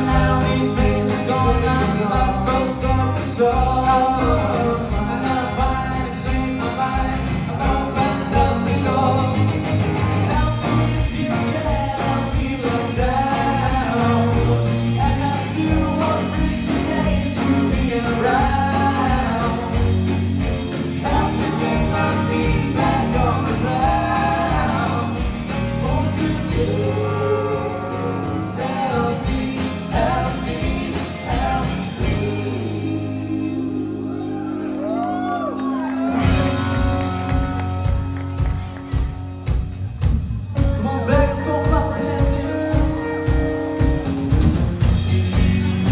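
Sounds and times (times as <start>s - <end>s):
person singing lead vocal: 0.0s - 37.4s, 40.6s - 43.5s
drums: 0.0s - 45.9s
electric guitars: 0.0s - 45.9s.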